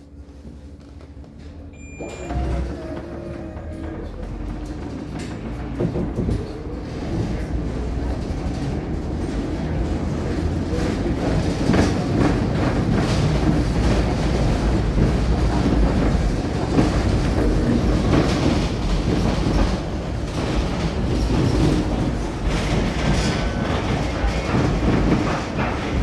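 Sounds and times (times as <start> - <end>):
tram wheels running on rails: 0.0 - 26.0.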